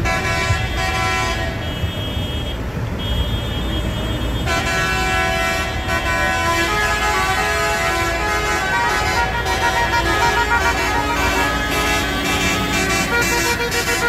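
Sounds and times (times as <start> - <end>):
diesel engines rumbling: 0.0 - 14.0
tractor horns blasting: 0.0 - 14.0.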